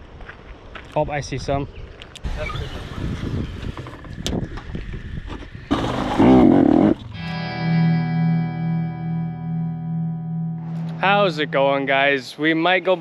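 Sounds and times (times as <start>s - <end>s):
rough uneven noise: 2.2s - 7.2s
distorted electric guitar chord: 7.1s - 12.1s
loud wavering pitch sound: 7.1s - 12.2s.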